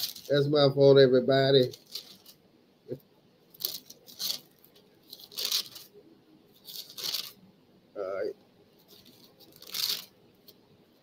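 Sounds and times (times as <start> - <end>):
scratchy rustling: 0.0 - 0.4, 1.6 - 2.4, 3.5 - 7.4, 8.8 - 10.6.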